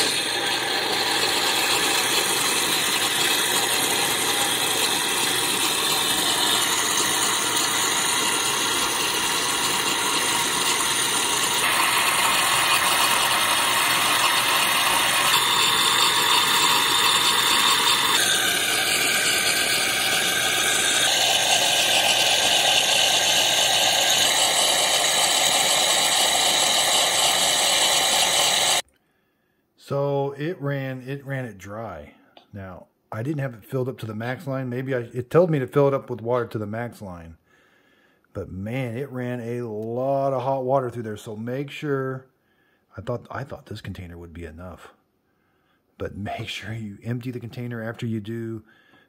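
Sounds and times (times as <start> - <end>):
espresso machine pump running: 0.0 - 28.8
steam hissing: 0.0 - 28.8.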